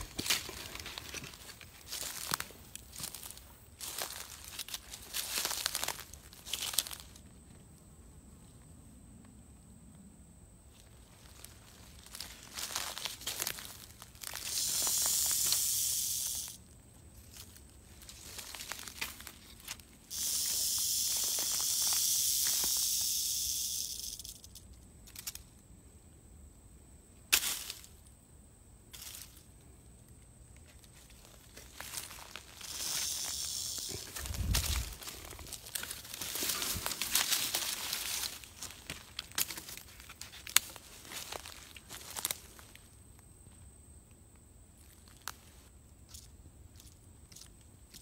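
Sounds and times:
rattlesnake rattle buzzing: 0:11.3 - 0:25.6, 0:30.9 - 0:42.3.

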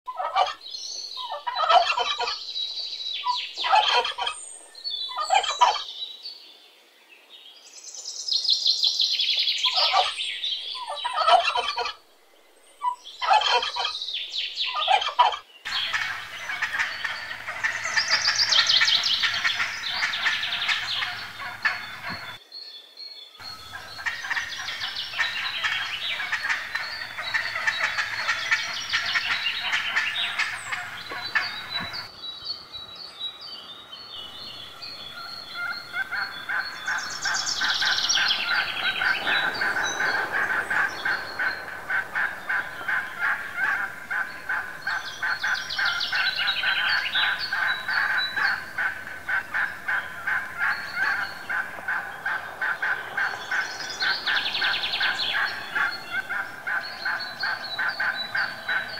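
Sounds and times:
turkeys gobbling: 0:00.1 - 0:00.6, 0:01.2 - 0:02.4, 0:03.2 - 0:04.4, 0:05.1 - 0:05.8, 0:09.7 - 0:10.1, 0:10.8 - 0:12.0, 0:12.8 - 0:14.0, 0:14.7 - 0:22.4, 0:23.5 - 0:32.1, 0:34.6 - 0:58.9.

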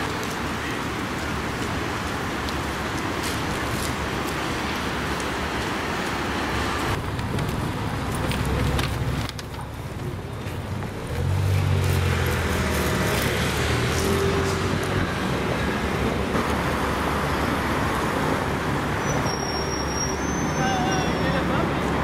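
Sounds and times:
cars going by: 0:00.0 - 0:22.0
vehicle engine rumble passing: 0:06.4 - 0:19.8.

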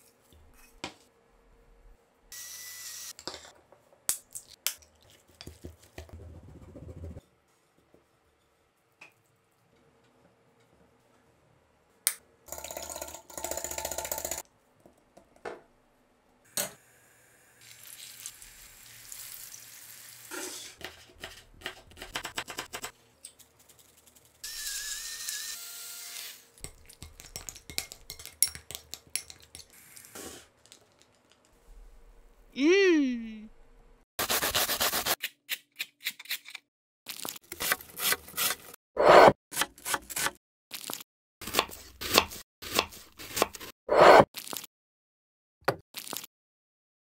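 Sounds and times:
cutlets sizzling in hot oil: 0:17.6 - 0:20.8
spoon taps and clicks: 0:26.6 - 0:29.7.

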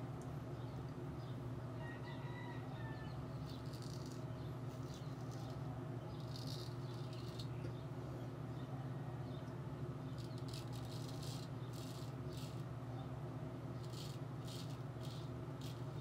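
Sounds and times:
steady low hum: 0:00.0 - 0:16.0
razor scraping stubble: 0:03.3 - 0:07.7, 0:10.1 - 0:12.7, 0:13.7 - 0:16.0.

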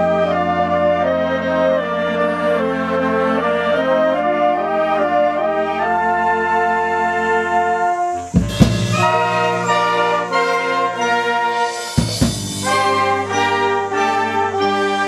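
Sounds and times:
wind band playing: 0:00.0 - 0:15.0
sharp percussive strokes: 0:08.2 - 0:14.4.

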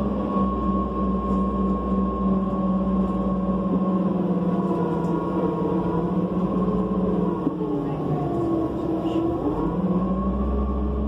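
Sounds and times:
high whine: 0:00.0 - 0:07.5
bus engine running: 0:00.0 - 0:11.0
deep low rumble: 0:00.0 - 0:11.0.

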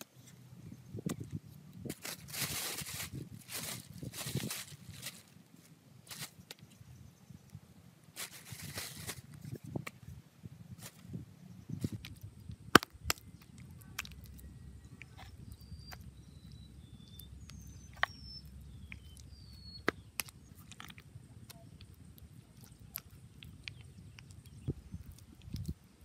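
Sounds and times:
thin steady high whine: 0:05.2 - 0:26.0
hands knocking and scraping soil: 0:11.8 - 0:21.9
bird whistling: 0:14.5 - 0:20.5.

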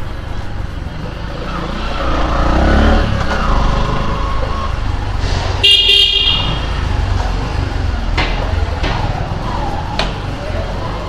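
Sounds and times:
low traffic rumble: 0:00.0 - 0:11.0
vehicle horn honking: 0:05.6 - 0:06.6.

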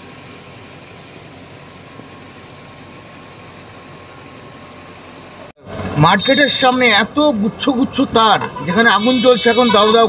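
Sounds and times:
fire hose water jet rushing: 0:00.0 - 0:07.0
fire engine pump running: 0:00.0 - 0:10.0.

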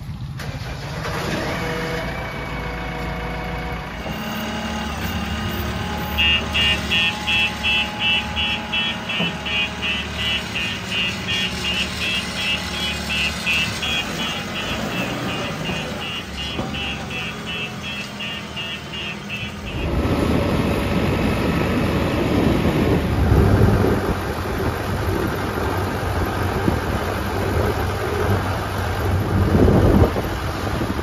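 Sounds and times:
diesel engine running: 0:00.0 - 0:31.0
heavy diesel rumble: 0:00.0 - 0:31.0
high reversing beep: 0:04.3 - 0:20.0.

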